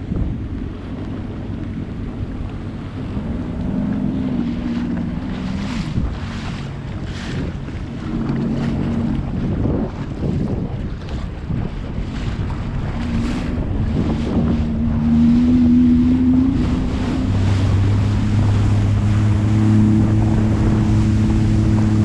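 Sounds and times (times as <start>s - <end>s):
personal watercraft engine running: 0.0s - 22.0s
wind buffeting microphone: 0.0s - 22.0s
water spray hissing off hull: 12.4s - 22.0s.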